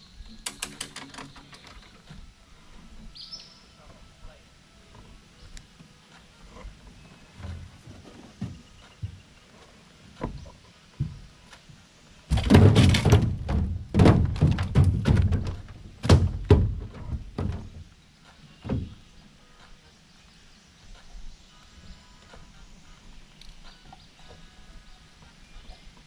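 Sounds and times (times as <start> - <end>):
hollow knocks on metal boat: 12.3 - 17.9, 18.6 - 19.0.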